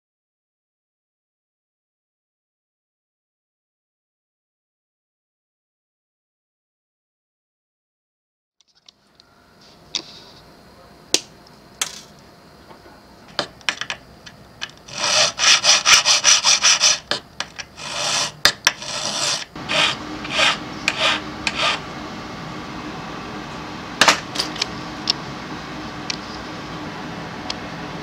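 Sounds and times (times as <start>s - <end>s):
hand file scraping metal: 14.9s - 17.1s, 17.7s - 21.8s.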